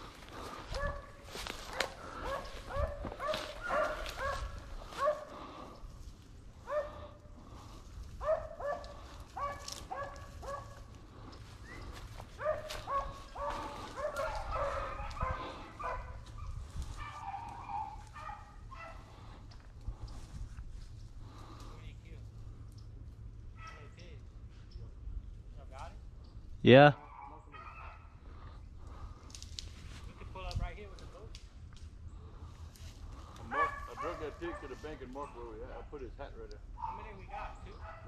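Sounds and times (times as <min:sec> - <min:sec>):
dogs barking: 0:00.3 - 0:05.8, 0:06.6 - 0:19.5, 0:23.5 - 0:24.0, 0:27.0 - 0:29.0, 0:33.2 - 0:36.0, 0:36.7 - 0:38.0
higher-pitched dog bark: 0:01.7 - 0:05.3, 0:06.7 - 0:06.9, 0:08.2 - 0:10.8, 0:12.4 - 0:19.0, 0:33.5 - 0:34.7.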